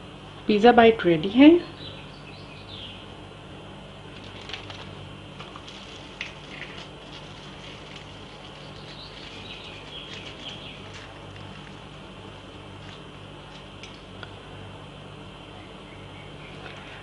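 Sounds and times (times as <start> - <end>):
low steady hum: 0.0 - 17.0
bread crust crackling: 4.1 - 14.3.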